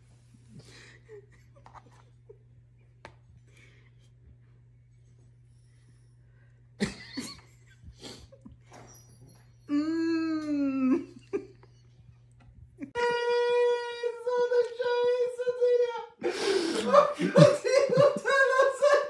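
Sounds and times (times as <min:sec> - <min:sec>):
steady low hum: 0:00.0 - 0:19.0
woman laughing quietly: 0:00.5 - 0:04.3, 0:06.8 - 0:08.9, 0:09.6 - 0:13.0, 0:16.2 - 0:19.0
high-pitched cry-laugh: 0:16.8 - 0:19.0.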